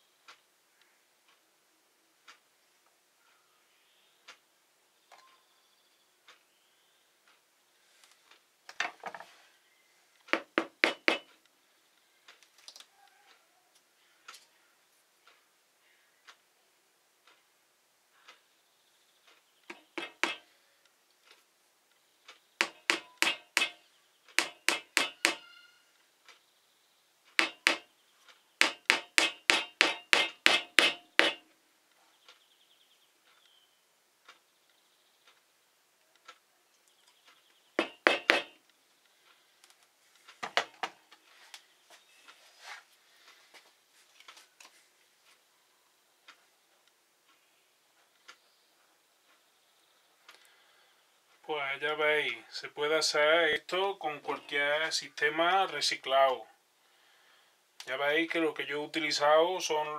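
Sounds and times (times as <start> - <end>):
hammer tapping nails into wood: 10.3 - 11.3, 19.7 - 20.5, 22.6 - 25.5, 27.4 - 27.9, 28.6 - 31.5, 37.8 - 38.6.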